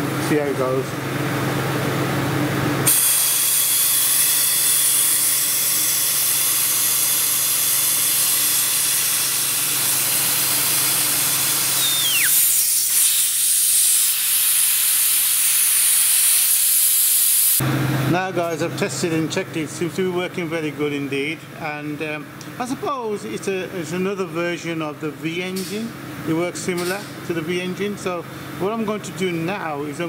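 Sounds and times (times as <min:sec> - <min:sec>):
compressed air hissing: 0:02.9 - 0:17.6
short falling whistle: 0:11.7 - 0:12.8.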